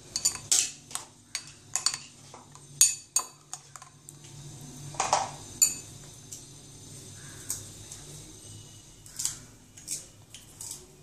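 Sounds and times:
spoon clinking in glass bowl: 0.1s - 2.1s, 2.8s - 3.9s, 5.6s - 5.9s.

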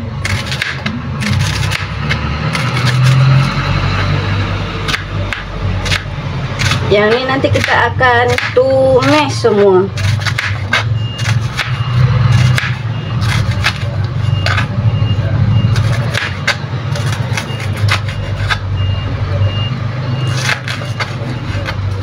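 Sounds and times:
knife chopping onion on plastic board: 0.2s - 3.3s, 4.8s - 14.7s, 15.7s - 18.7s, 20.3s - 22.0s
faint high beeps: 10.9s - 21.7s.

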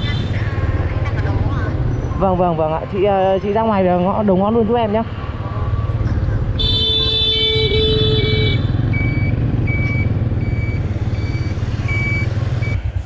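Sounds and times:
scooter engine and road rumble: 0.0s - 13.0s
scooter horn: 6.6s - 8.9s.

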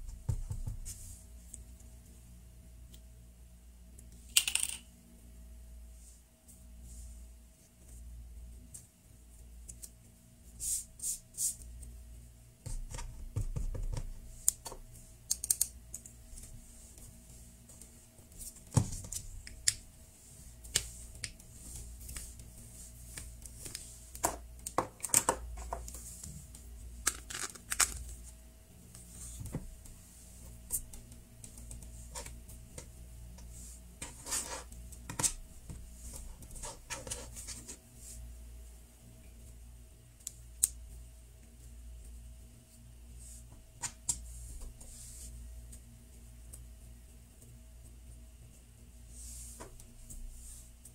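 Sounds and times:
clay patted on table: 0.1s - 1.0s
clay squishing: 12.8s - 38.3s.

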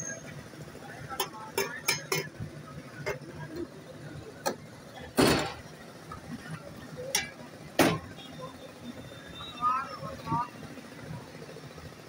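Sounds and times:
metal pot and mug clinking: 1.2s - 2.4s.

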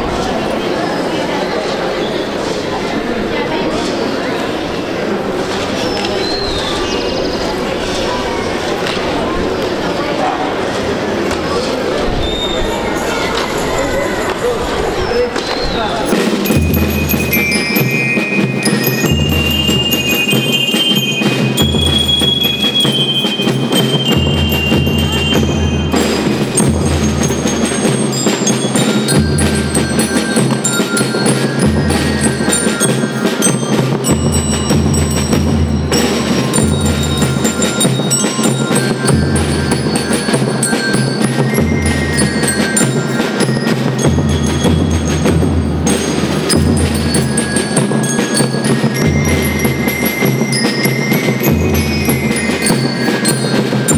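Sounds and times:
bell lyres ringing: 11.2s - 53.9s
snare drums: 15.1s - 53.9s.

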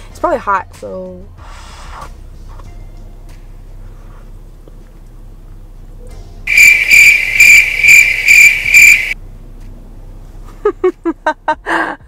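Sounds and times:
cricket chirping: 6.5s - 9.2s.

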